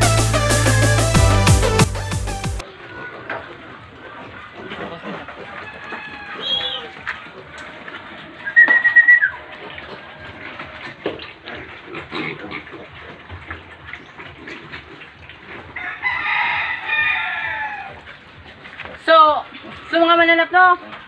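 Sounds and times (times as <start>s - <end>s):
piglets scrambling and eating: 2.6s - 21.0s
rooster crowing: 5.3s - 7.1s, 15.8s - 18.0s.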